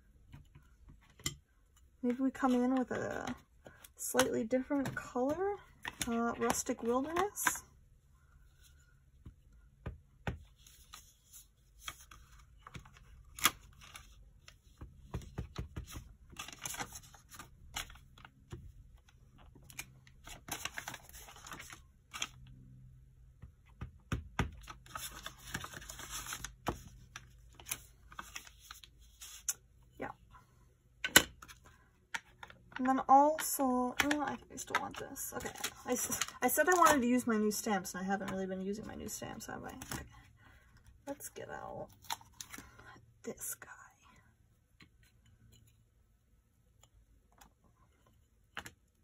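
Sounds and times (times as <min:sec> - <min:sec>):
paper rustling: 0:24.8 - 0:29.6.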